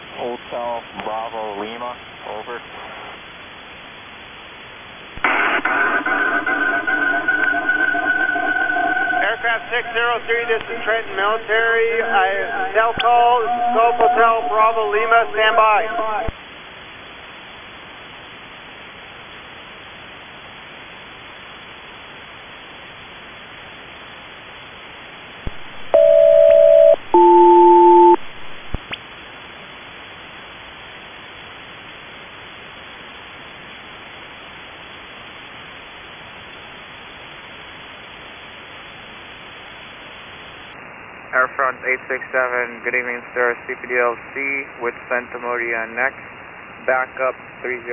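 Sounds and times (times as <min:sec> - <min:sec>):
radio band hiss: 0:00.0 - 0:17.9, 0:36.8 - 0:47.9
paired radio tones: 0:02.2 - 0:03.2, 0:05.2 - 0:16.4, 0:25.4 - 0:29.0.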